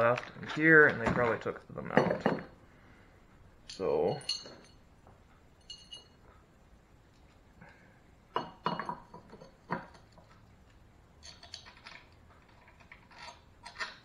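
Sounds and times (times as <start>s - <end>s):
metal bolts clinking: 3.6s - 4.8s, 5.6s - 6.2s.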